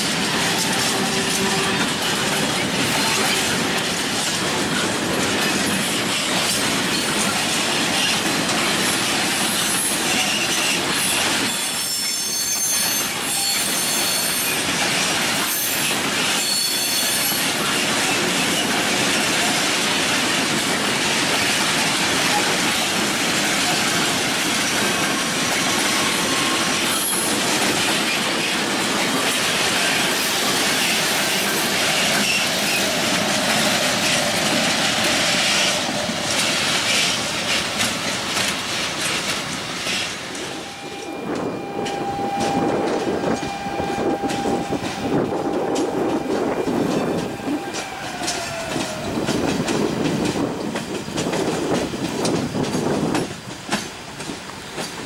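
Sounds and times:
wheels clattering over rail joints: 0.0 - 12.1, 17.4 - 40.8
electric train steady tone: 0.0 - 55.0
freight train rolling past: 0.0 - 55.0
wheel squeal: 9.8 - 14.7, 15.4 - 17.8.

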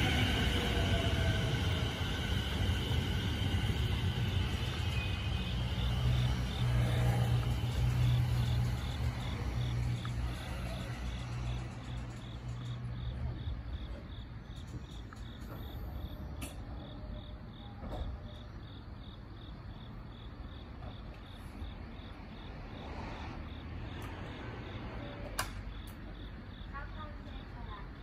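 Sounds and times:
train wheels and motors rumbling: 0.0 - 22.6, 23.4 - 28.0.

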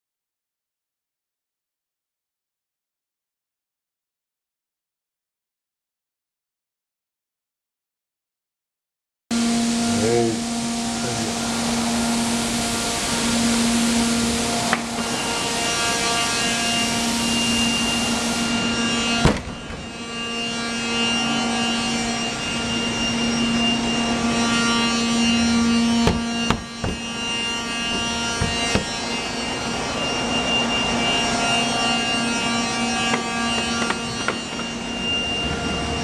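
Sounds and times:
droning mechanical hum: 9.3 - 36.0.

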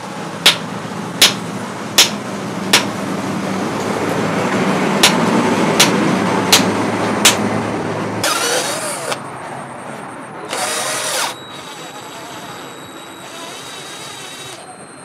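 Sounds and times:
cordless drill motor whine: 8.2 - 9.3, 10.4 - 14.8.

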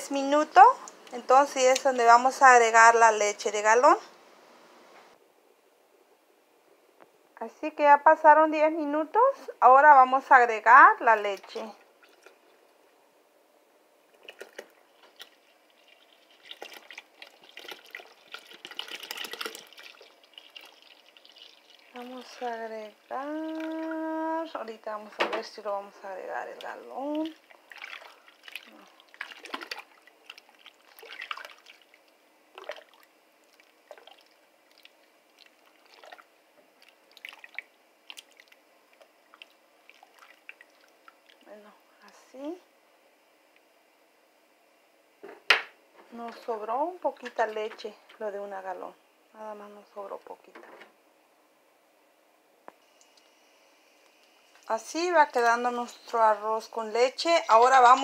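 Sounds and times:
milk pouring and splashing: 11.9 - 12.6, 14.1 - 24.0, 26.6 - 41.5.

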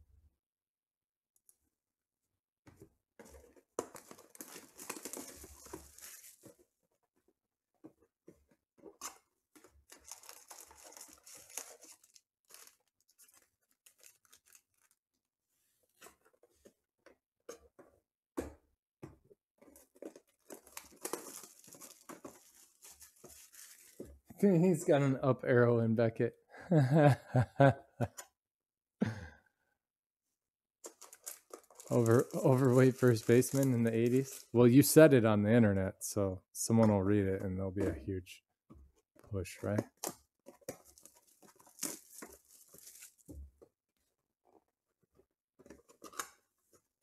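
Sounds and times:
foil packs crinkling and tearing: 3.8 - 6.5, 9.8 - 15.0, 20.0 - 24.1, 30.9 - 34.9, 40.6 - 43.3.

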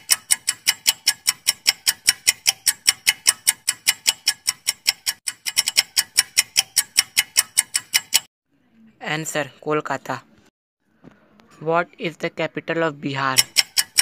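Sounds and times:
clock ticking: 0.0 - 8.3, 13.1 - 14.0.

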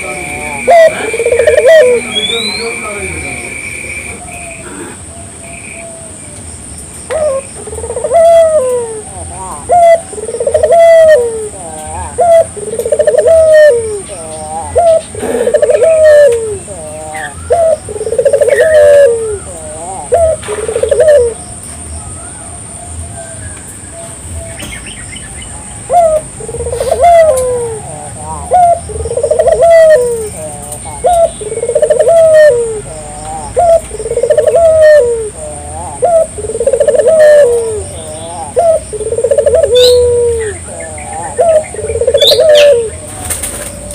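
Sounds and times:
dove cooing: 0.0 - 5.2, 7.1 - 21.4, 25.5 - 43.9.

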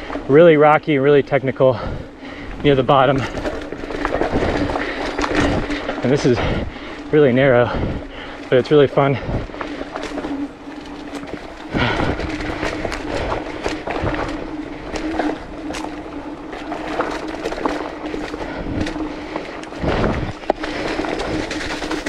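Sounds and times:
bike tyres rolling over dirt: 0.0 - 22.0
steady hum: 0.0 - 22.0
bike clattering and knocking: 2.9 - 6.8.

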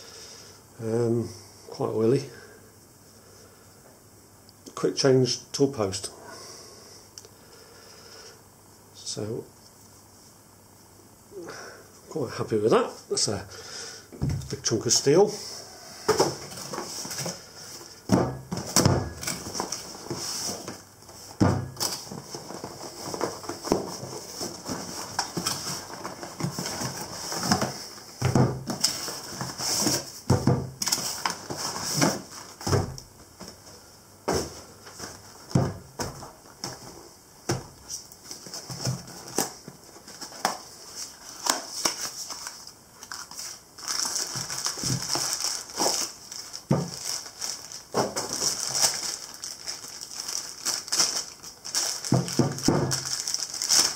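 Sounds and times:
cardboard rustling: 15.7 - 53.9
paper crinkling: 18.7 - 28.1, 37.8 - 53.9
boxes knocking on wooden table: 27.5 - 28.8, 30.3 - 30.8, 35.5 - 36.9.

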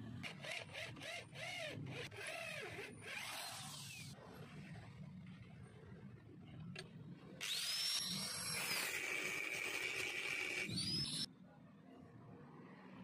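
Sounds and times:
angle grinder cutting metal: 7.4 - 11.3.

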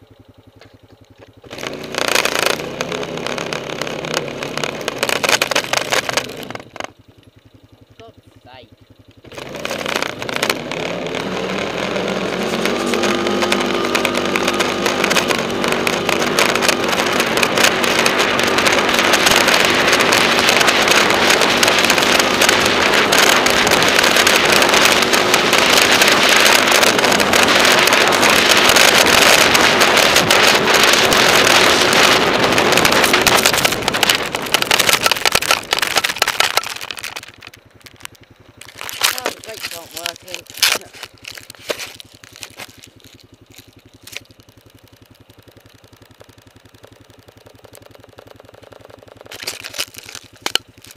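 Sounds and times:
quad engine running: 0.0 - 50.9.

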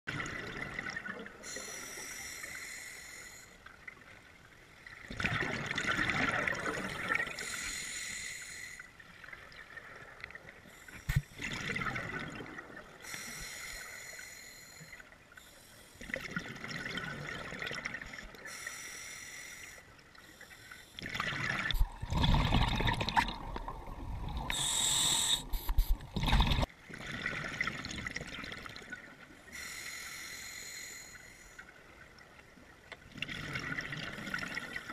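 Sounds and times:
diver breathing through regulator: 1.5 - 3.6, 7.4 - 8.9, 24.5 - 26.0, 29.5 - 31.6.

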